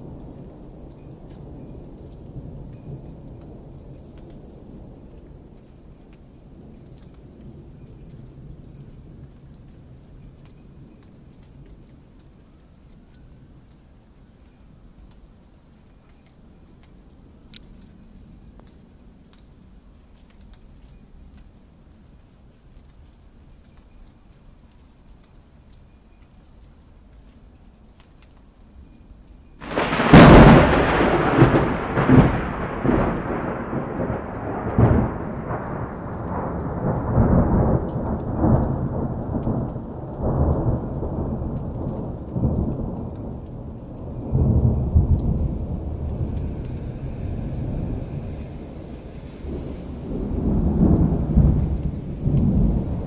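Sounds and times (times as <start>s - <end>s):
faint rain: 0.0s - 53.0s
rolling thunder rumble: 29.6s - 53.0s
thunderclap: 29.6s - 53.0s.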